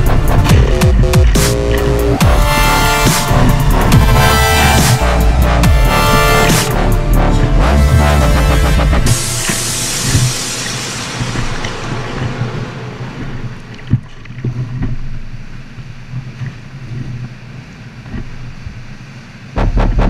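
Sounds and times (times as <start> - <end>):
music: 0.0 - 14.6, 19.6 - 20.0
ocean swell washing through cave: 0.0 - 19.6.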